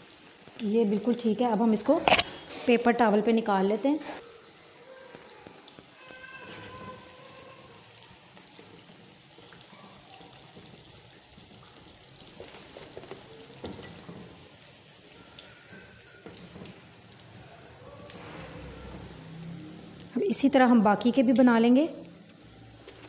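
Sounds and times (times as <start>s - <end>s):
frying in hot oil: 0.0s - 23.0s.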